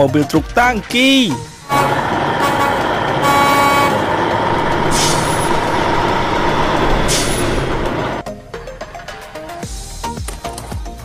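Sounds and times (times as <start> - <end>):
truck engine running: 1.4 - 8.2
truck horn toot: 1.6 - 7.9
short hiss: 4.8 - 5.6.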